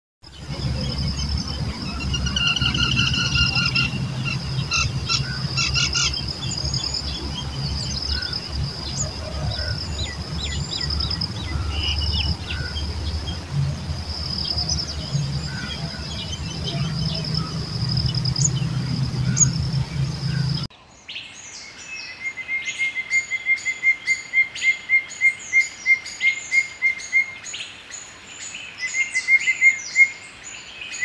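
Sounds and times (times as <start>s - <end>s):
birds chirping: 0.2s - 22.3s
low rumble: 0.3s - 20.7s.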